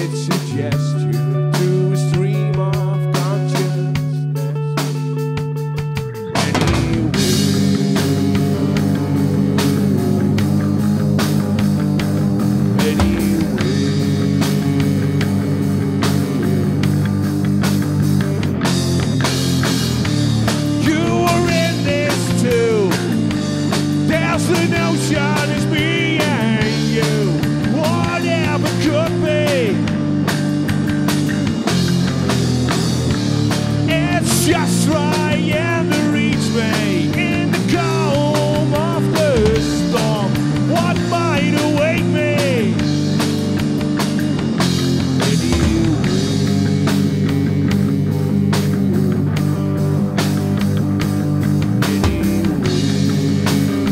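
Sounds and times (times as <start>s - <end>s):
man singing: 0.0s - 5.3s, 6.2s - 7.6s, 12.8s - 14.0s, 20.7s - 30.0s, 33.8s - 42.9s, 45.1s - 47.9s
bass guitar: 0.0s - 53.9s
drum kit: 0.0s - 53.9s
electric guitar: 0.0s - 53.9s.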